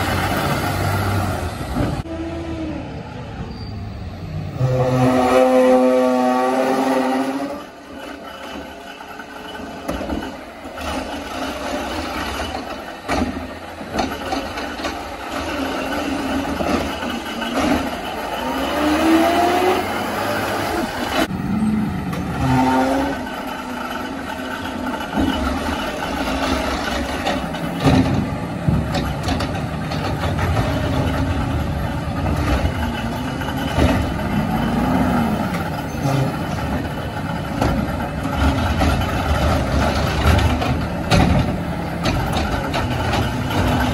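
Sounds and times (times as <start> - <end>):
garbage truck engine revving: 4.3 - 43.9.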